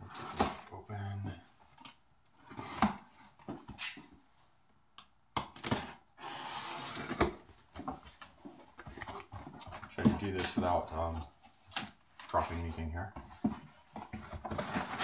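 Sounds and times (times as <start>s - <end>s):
cardboard or tape rasp: 5.6s - 7.4s.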